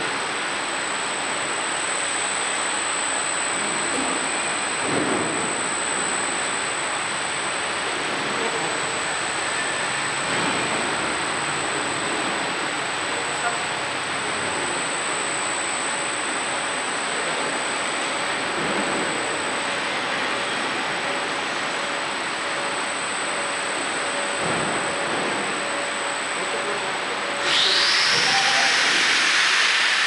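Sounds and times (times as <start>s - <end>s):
loud hiss: 27.4s - 30.0s.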